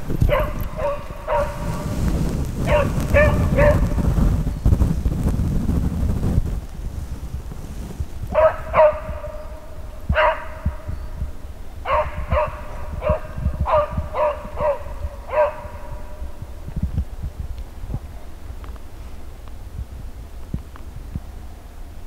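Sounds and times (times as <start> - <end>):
dog baying: 0.3 - 1.9, 8.4 - 10.9, 11.9 - 16.2.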